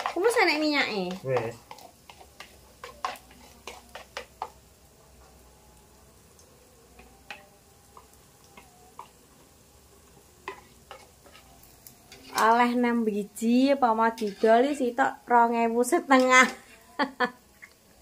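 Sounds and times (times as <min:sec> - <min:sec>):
utensil tapping a pan: 0:00.0 - 0:04.6
food sizzling in oil: 0:00.0 - 0:18.0.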